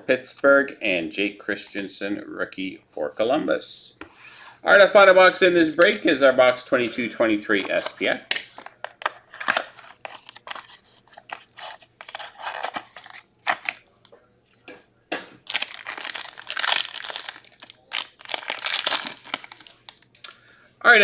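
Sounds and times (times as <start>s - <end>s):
foil wrapper crinkling and tearing: 9.3s - 13.8s, 15.5s - 20.2s.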